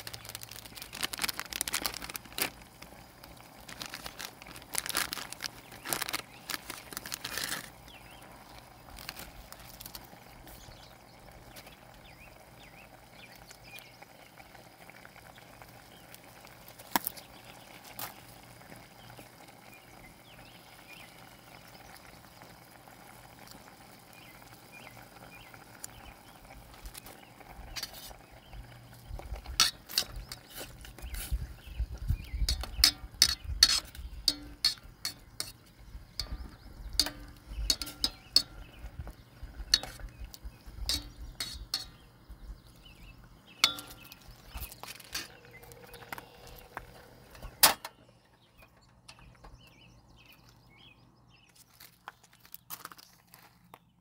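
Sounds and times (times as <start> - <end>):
soup simmering in a pot: 0.0 - 48.2
metal tongs clinking against pot: 29.5 - 30.6, 32.4 - 38.8, 39.6 - 40.0, 40.8 - 42.1, 43.6 - 44.2.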